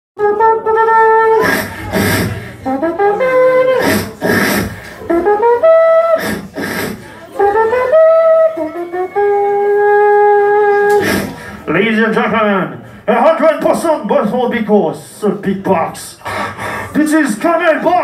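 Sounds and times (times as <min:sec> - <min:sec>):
beatboxing voice sliding notes: 0:00.2 - 0:11.7
hissing snare-like beatbox hits: 0:03.8 - 0:05.0, 0:06.2 - 0:07.0.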